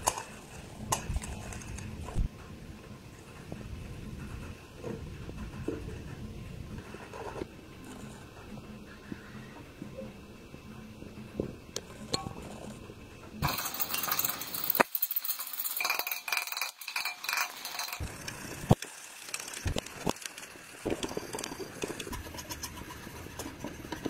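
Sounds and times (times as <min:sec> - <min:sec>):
metal parts clinking: 0:13.4 - 0:18.1
scratchy hissy noise: 0:17.5 - 0:24.0.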